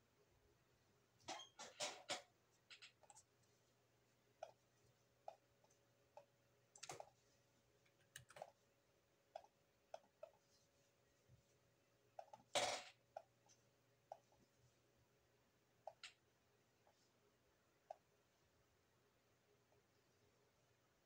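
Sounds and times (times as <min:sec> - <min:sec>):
computer mouse clicks: 0:06.2 - 0:07.1, 0:07.9 - 0:08.6, 0:09.3 - 0:10.4.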